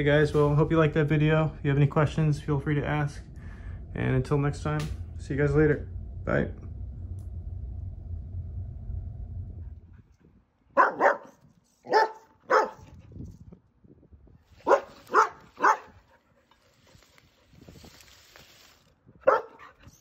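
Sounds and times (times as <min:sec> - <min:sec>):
low steady hum: 0:00.0 - 0:20.0
dog barking: 0:10.8 - 0:12.8, 0:14.6 - 0:16.0, 0:19.2 - 0:19.8.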